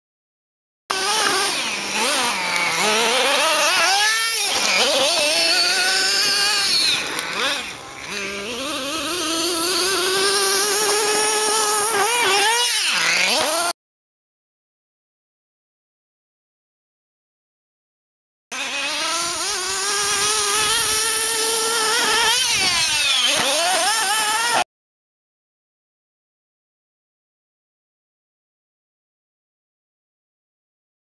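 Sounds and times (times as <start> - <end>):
rc car engine revving: 0.9 - 13.8, 18.5 - 24.7.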